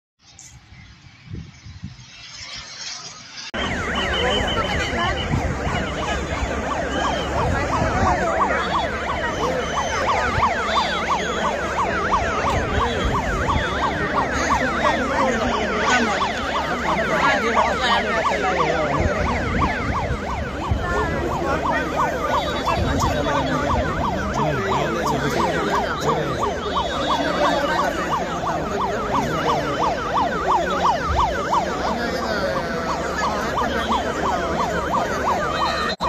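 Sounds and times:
emergency vehicle sirens: 0:00.2 - 0:36.0
crowd shouting: 0:03.6 - 0:36.0.

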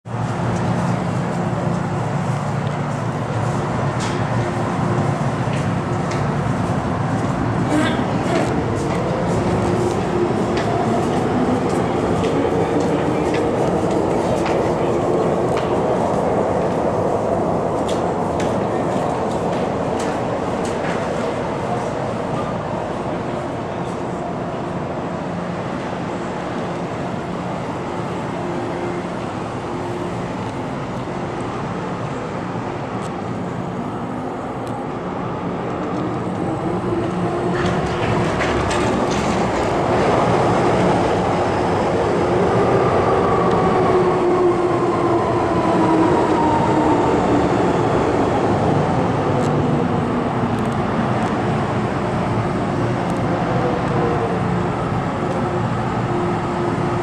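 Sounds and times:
train rumbling through station: 0:00.0 - 0:57.0.

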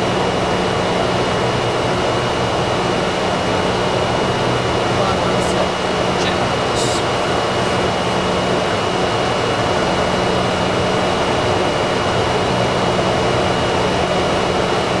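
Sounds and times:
airflow and engine noise: 0:00.0 - 0:15.0
thin high whine: 0:03.9 - 0:09.1.

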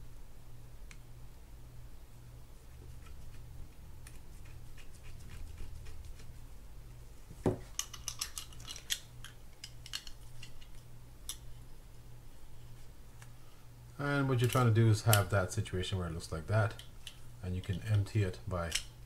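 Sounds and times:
metal reel parts clicking: 0:07.7 - 0:11.5, 0:14.3 - 0:15.4, 0:16.7 - 0:19.0.

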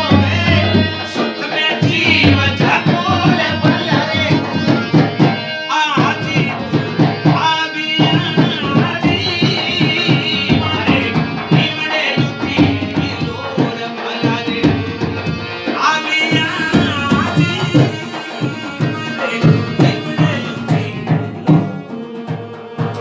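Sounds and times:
hand drum steady beat: 0:00.0 - 0:05.4, 0:06.0 - 0:23.0
people singing: 0:00.0 - 0:23.0.

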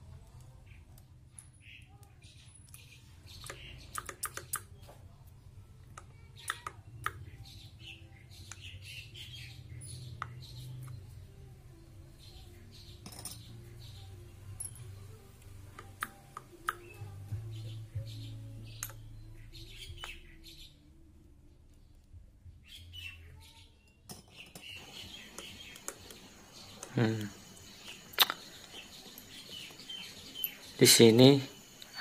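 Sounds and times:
metallic clicks and clinks: 0:13.0 - 0:13.6, 0:14.6 - 0:15.0.

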